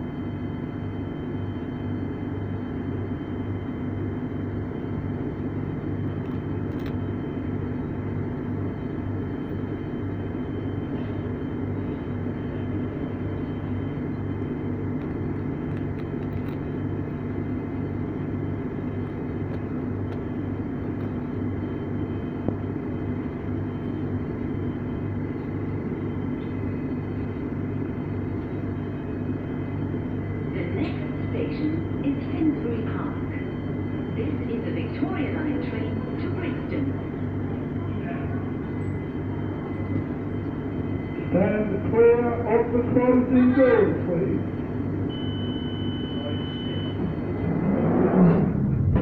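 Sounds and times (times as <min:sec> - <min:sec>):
faint high whines: 0:00.0 - 0:49.0
train equipment hum: 0:00.0 - 0:49.0
low pulsing throb: 0:45.1 - 0:49.0.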